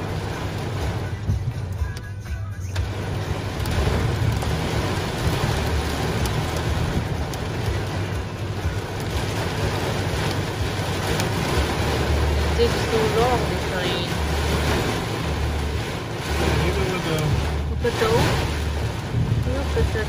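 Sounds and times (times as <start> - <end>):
heavy rain on vehicle roof: 0.0 - 20.0
low rumble: 0.0 - 20.0.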